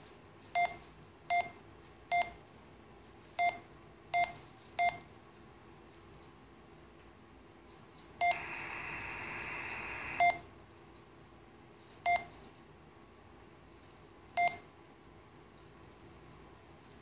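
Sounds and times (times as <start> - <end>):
short radio key beeps: 8.2 - 10.4
receiver hiss: 8.2 - 10.5.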